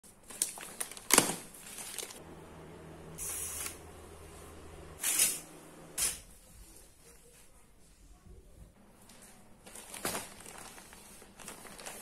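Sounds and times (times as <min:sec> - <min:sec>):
plastic packaging crinkling: 0:00.1 - 0:02.2, 0:09.1 - 0:12.0.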